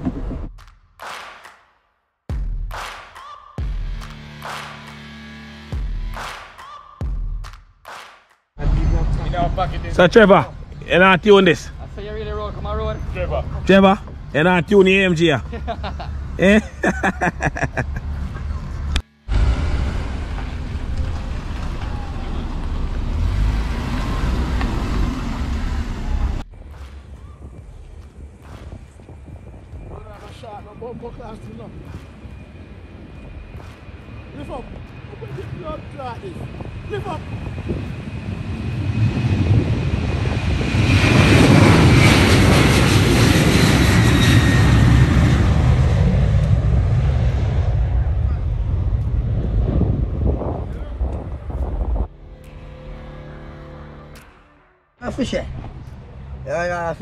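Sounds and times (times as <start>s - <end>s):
cars moving slowly: 8.6s - 39.0s
jet engines at takeoff thrust: 8.6s - 52.1s.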